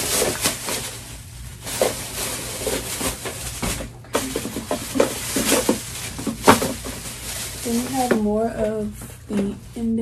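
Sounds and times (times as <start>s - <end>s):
shopping bags rustling: 0.0s - 10.0s.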